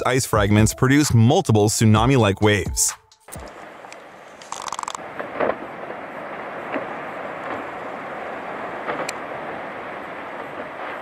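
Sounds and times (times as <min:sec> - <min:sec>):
ice cracking: 0:04.3 - 0:05.0.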